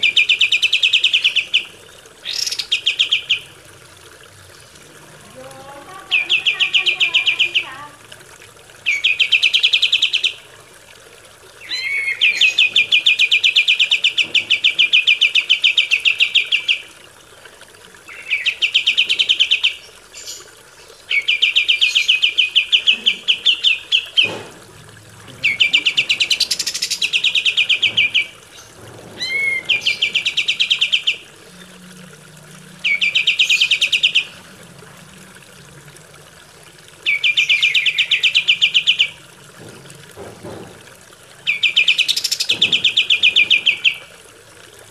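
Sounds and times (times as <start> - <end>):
bird singing chattering notes: 6.0 - 7.8, 25.2 - 31.3, 32.8 - 34.4.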